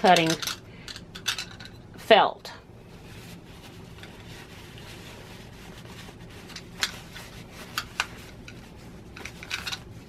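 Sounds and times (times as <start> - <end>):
paper towel rubbing: 2.8 - 10.0.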